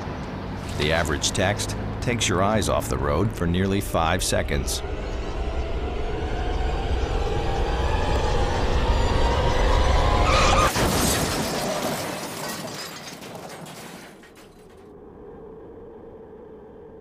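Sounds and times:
low rumbling music: 1.2 - 10.2
car crash: 10.1 - 14.9
glass shattering: 10.6 - 14.8.

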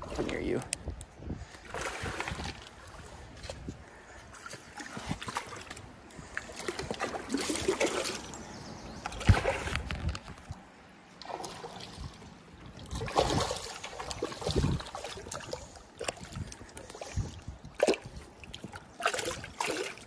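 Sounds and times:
fish thrashing and splashing: 4.4 - 10.5, 11.1 - 20.0.

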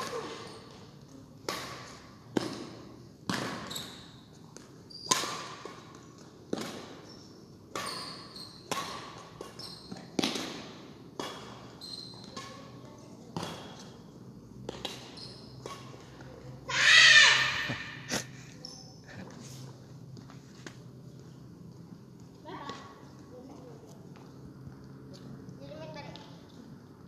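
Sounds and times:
rackets hitting shuttlecock: 0.0 - 16.3.

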